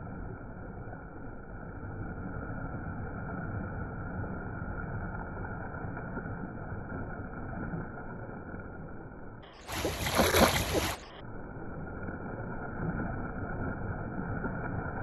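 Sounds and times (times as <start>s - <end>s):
fountain jet splashing into pool: 9.6s - 11.1s.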